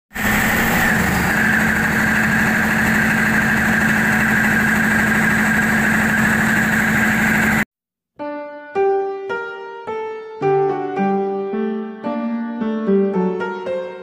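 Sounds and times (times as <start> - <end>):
diesel generator engine running: 0.1 - 7.6
steady high whine: 0.2 - 7.6.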